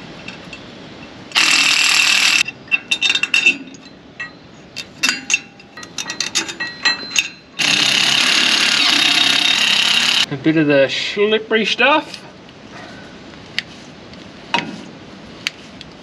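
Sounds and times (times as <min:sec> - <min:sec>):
cordless impact driver: 0:01.4 - 0:02.4, 0:07.6 - 0:10.2
metallic clicks and clinks: 0:02.4 - 0:07.5.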